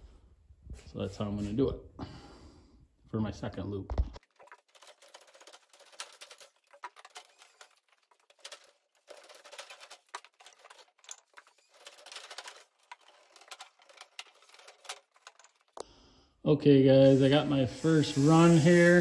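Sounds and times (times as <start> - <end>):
tubing scraping and rustling: 4.2 - 15.8, 17.2 - 19.0.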